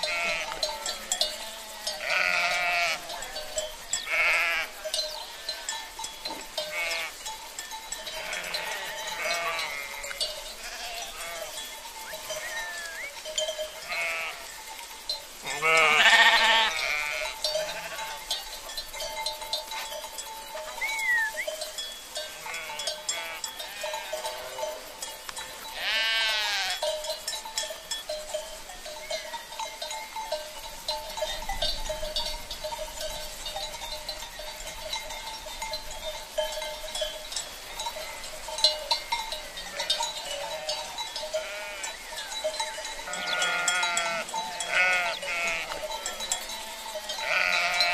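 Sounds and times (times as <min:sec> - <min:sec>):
faint bleats from flock: 0:00.0 - 0:05.9, 0:06.6 - 0:07.2, 0:08.0 - 0:11.6, 0:13.7 - 0:14.5, 0:15.4 - 0:18.2, 0:22.2 - 0:24.6, 0:25.8 - 0:26.8, 0:39.6 - 0:42.0, 0:43.1 - 0:46.2, 0:47.2 - 0:47.9
sheep bleating: 0:00.0 - 0:05.9, 0:06.6 - 0:07.2, 0:08.0 - 0:11.6, 0:12.4 - 0:14.5, 0:15.4 - 0:18.2, 0:22.2 - 0:24.5, 0:25.8 - 0:26.8, 0:39.6 - 0:42.0, 0:43.1 - 0:46.2, 0:47.1 - 0:47.9.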